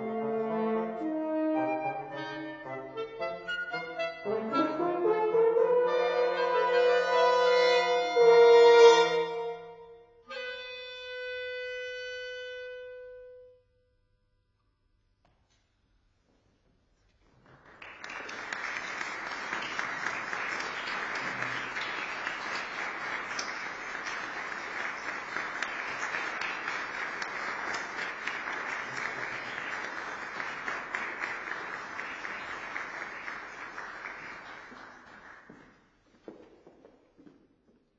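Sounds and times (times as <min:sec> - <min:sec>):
audience applauding: 0:17.3 - 0:35.8.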